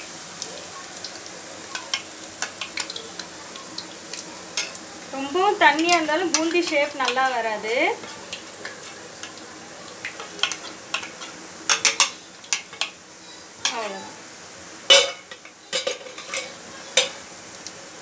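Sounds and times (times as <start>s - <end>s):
batter sizzling in hot oil: 0.0s - 18.0s.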